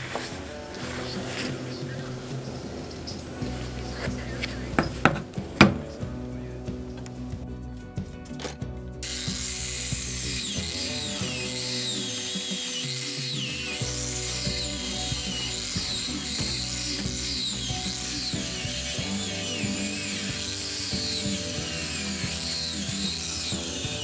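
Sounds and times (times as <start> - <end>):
background music: 0.0 - 24.0
angle grinder brushing metal: 9.0 - 24.0.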